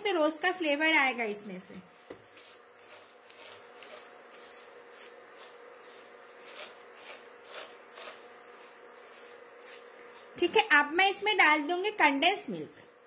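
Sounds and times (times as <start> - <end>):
spatula scraping noodles in pan: 1.9 - 10.7.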